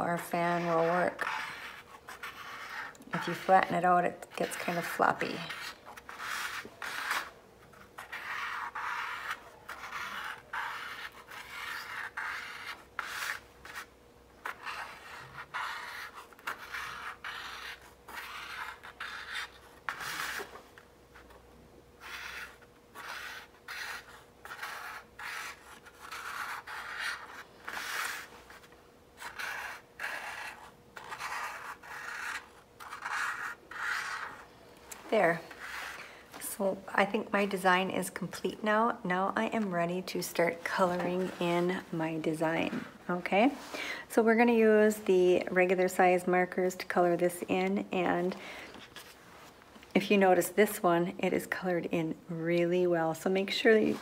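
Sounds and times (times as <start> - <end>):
marker scratching on paper: 0.1 - 20.6, 22.0 - 34.4, 35.0 - 36.0.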